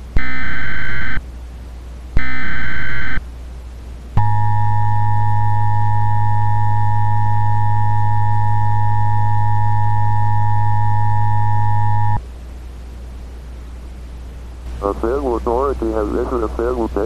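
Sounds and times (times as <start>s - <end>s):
low hum: 0.0s - 17.0s
two-tone alert alarm: 0.2s - 1.2s, 2.2s - 3.2s, 4.2s - 12.2s.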